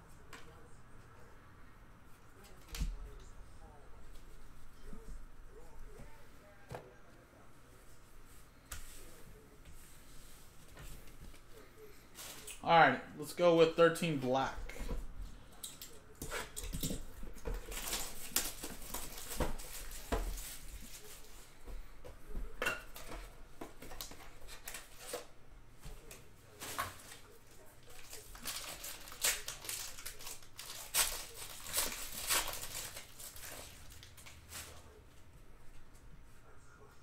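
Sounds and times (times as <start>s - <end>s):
card pack wrapper rustling: 28.0s - 34.7s.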